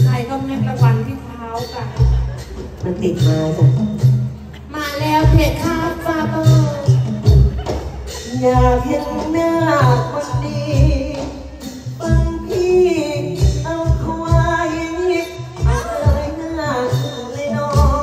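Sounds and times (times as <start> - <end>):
band accompaniment: 0.0 - 18.0
person singing into a microphone: 4.6 - 18.0.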